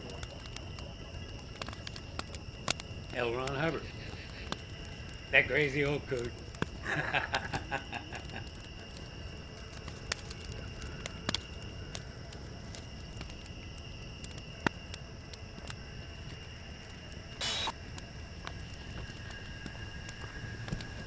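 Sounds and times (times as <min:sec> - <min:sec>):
campfire crackling and popping: 0:00.0 - 0:21.0
short hiss-like burst: 0:17.4 - 0:17.8.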